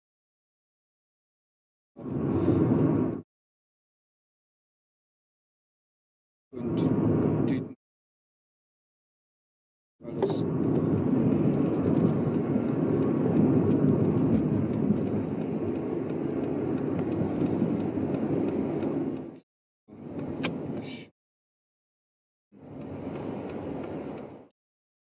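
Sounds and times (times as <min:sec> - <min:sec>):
car engine and tyres rumbling: 0:02.0 - 0:03.2, 0:06.6 - 0:07.8, 0:10.0 - 0:21.1, 0:22.6 - 0:24.5.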